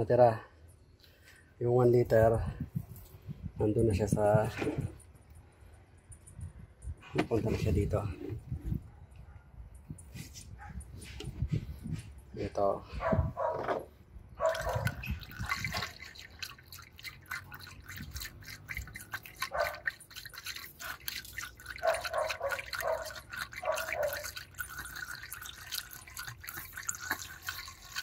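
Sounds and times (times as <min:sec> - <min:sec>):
liquid pouring into a funnel: 0:14.4 - 0:28.0.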